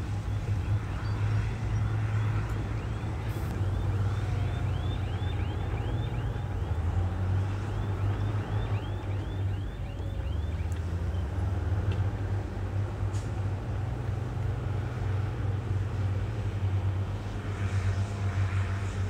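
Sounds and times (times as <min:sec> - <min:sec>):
diesel machinery engine drone: 0:00.0 - 0:19.0.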